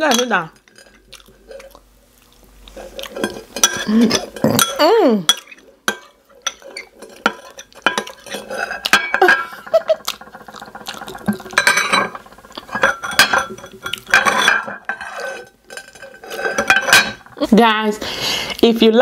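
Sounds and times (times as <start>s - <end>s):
metal spoon scraping a bowl: 2.8s - 17.4s.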